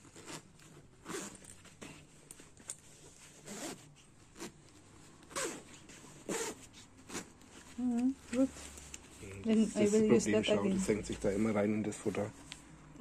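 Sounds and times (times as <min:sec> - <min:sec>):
zipper rasping: 0:00.0 - 0:10.1.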